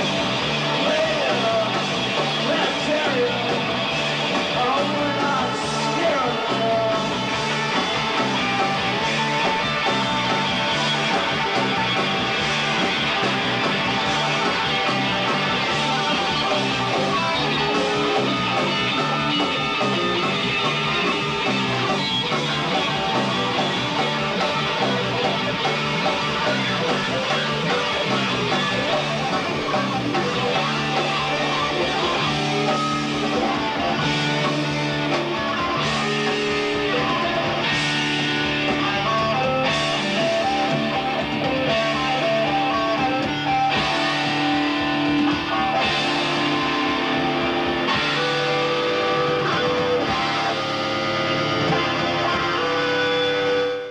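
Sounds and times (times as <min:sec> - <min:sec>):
live rock band playing: 0:00.0 - 0:53.9.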